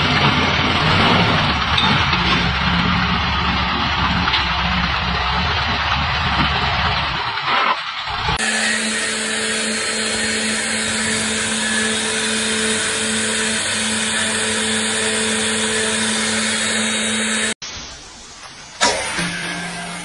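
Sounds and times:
router cutting wood: 0:08.1 - 0:17.6.

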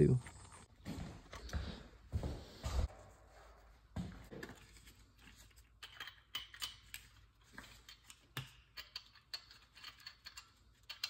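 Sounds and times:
metallic wrench handling: 0:05.7 - 0:11.0.

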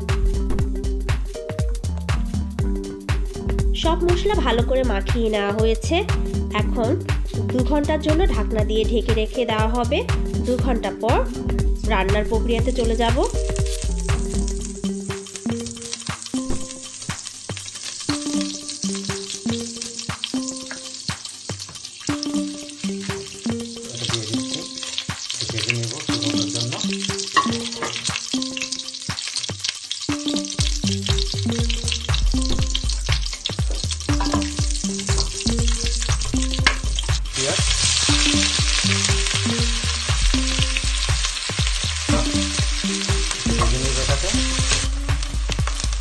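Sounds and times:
background music with bass beat: 0:00.0 - 0:16.9, 0:30.1 - 0:46.0
spices sizzling in hot oil: 0:00.0 - 0:46.0.

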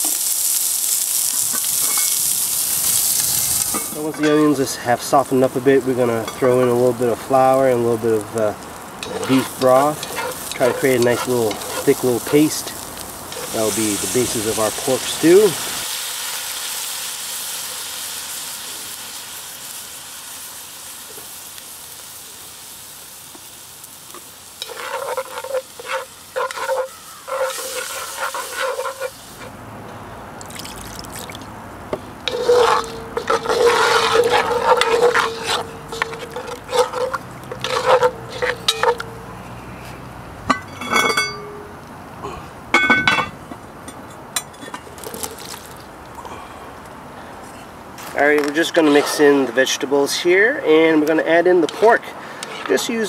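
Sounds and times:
sizzling in a pot: 0:00.0 - 0:29.6, 0:30.4 - 0:41.9, 0:42.7 - 0:46.1, 0:48.1 - 0:53.0
spoon scraping a pot: 0:09.0 - 0:12.7, 0:24.6 - 0:29.5, 0:32.2 - 0:39.2, 0:48.7 - 0:49.3.

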